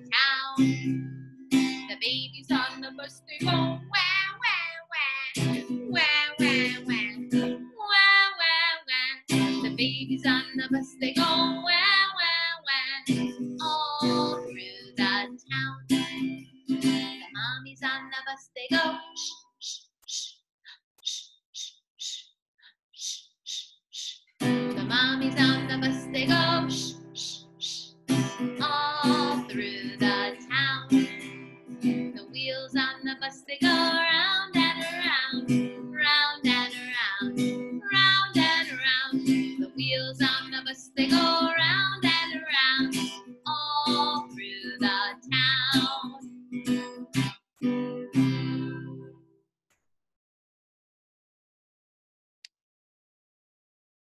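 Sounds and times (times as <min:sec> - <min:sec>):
woman singing slow song: 0:00.0 - 0:00.9, 0:01.8 - 0:16.0, 0:17.2 - 0:19.3, 0:24.7 - 0:27.8, 0:28.6 - 0:31.2, 0:32.1 - 0:46.2
strummed acoustic guitar: 0:00.0 - 0:04.3, 0:05.4 - 0:07.8, 0:09.3 - 0:11.9, 0:13.0 - 0:17.6, 0:24.4 - 0:49.2.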